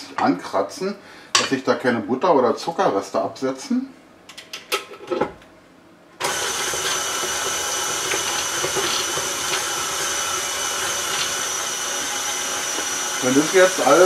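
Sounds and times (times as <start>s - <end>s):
stand mixer motor whining: 6.2s - 14.0s.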